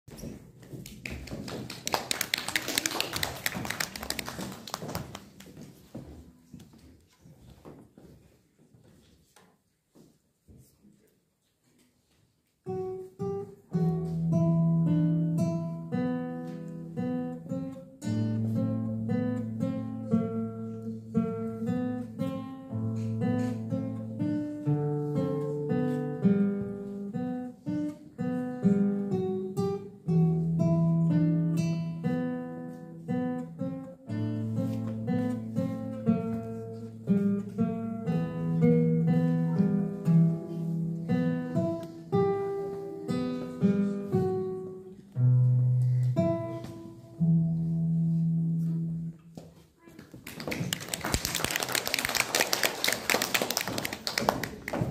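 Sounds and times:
fingerpicked classical guitar: 12.5s - 49.5s.

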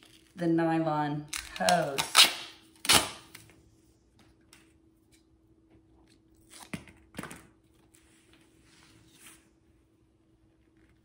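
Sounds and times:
duct tape ripping: 1.3s - 3.4s.

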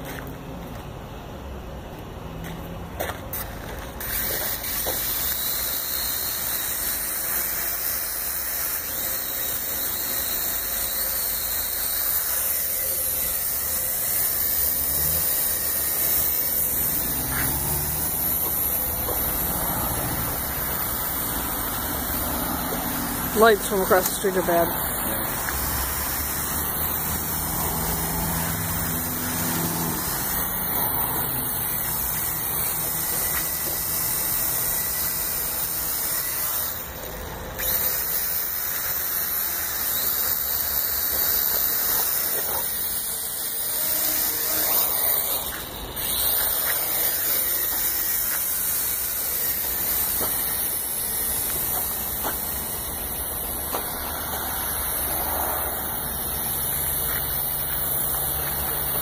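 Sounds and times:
toy drone propellers whirring: 3.4s - 59.0s.

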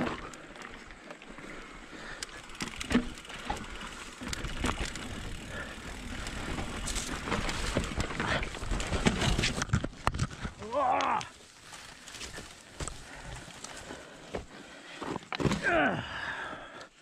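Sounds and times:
bike chain and frame rattling: 0.0s - 10.7s
tyres rolling over loose dirt: 0.0s - 16.5s.

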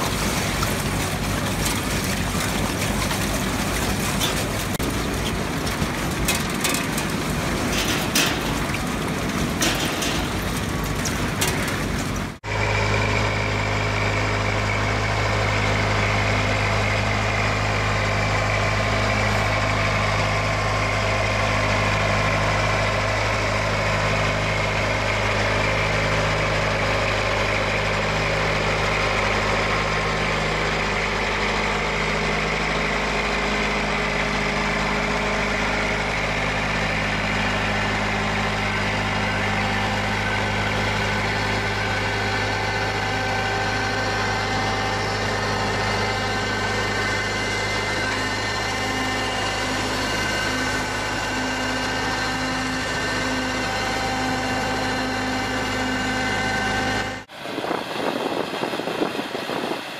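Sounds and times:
harvester engine hum: 0.0s - 59.9s
high machinery whine: 22.6s - 59.9s.

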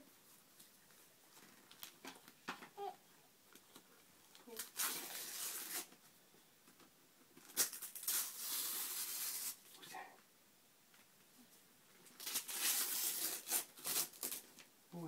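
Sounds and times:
wrapping paper tearing and rustling: 1.4s - 2.3s, 4.3s - 6.0s, 7.3s - 9.7s, 12.0s - 14.7s.

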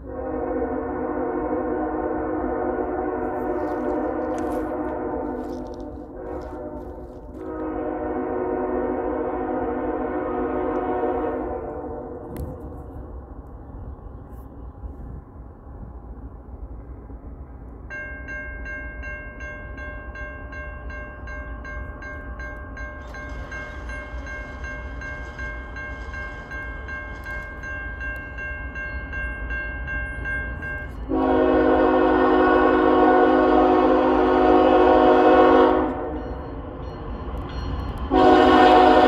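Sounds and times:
locomotive air horn blast: 0.0s - 12.6s, 31.1s - 36.2s, 38.1s - 39.0s
freight train rumble: 0.0s - 39.0s
bell ringing: 18.0s - 31.1s.

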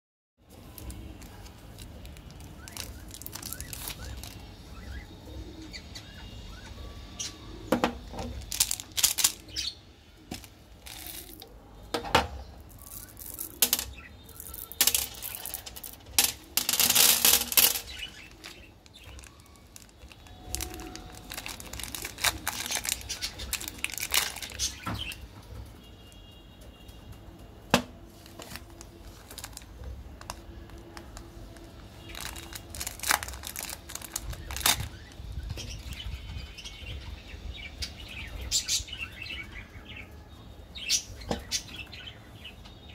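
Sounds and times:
birds chirping faintly: 0.4s - 42.9s
plastic candy wrappers crinkling: 0.5s - 4.8s, 8.2s - 9.7s, 10.3s - 11.6s, 12.6s - 25.2s, 28.1s - 36.1s
candy clicking and tapping: 0.6s - 4.5s, 8.2s - 9.6s, 10.3s - 11.5s, 12.7s - 25.2s, 27.7s - 35.1s.

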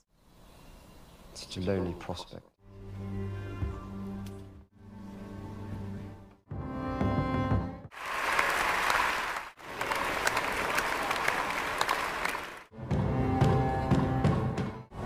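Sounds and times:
music: 2.6s - 7.9s, 12.7s - 15.0s
people clapping: 7.9s - 12.7s.

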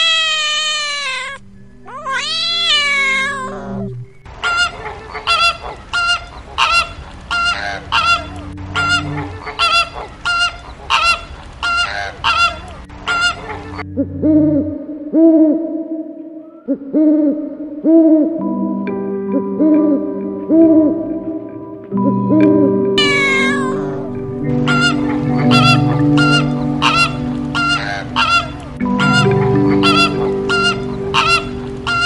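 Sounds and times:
cat meowing: 0.0s - 3.7s
owl hooting: 0.0s - 4.7s, 11.8s - 18.4s, 22.3s - 32.0s
goose-like honks: 7.4s - 11.1s, 24.5s - 32.0s.

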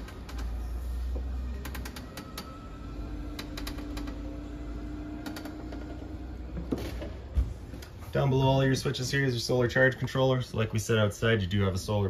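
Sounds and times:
trailer door clicking and creaking: 0.0s - 8.0s.

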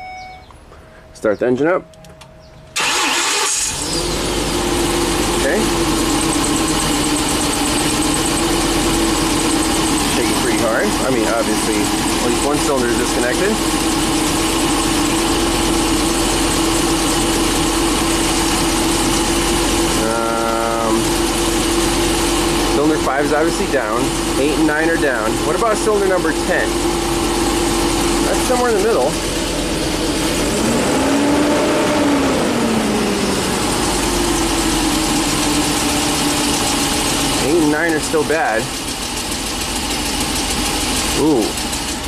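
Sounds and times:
short steady beep: 0.0s - 1.2s
engine idling rough: 2.7s - 42.0s.

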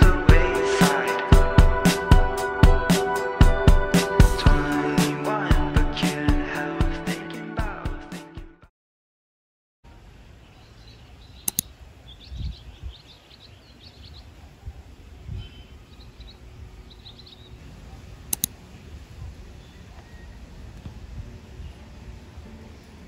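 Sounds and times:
small birds chirping: 10.0s - 23.0s
sharp double clicks: 11.4s - 11.7s, 18.3s - 18.6s.

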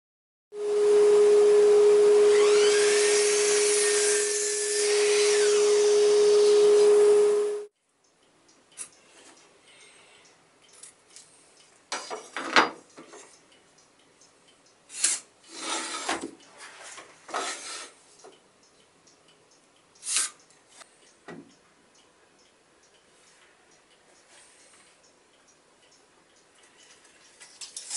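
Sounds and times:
cardboard filters scraping on wood: 15.6s - 18.0s.

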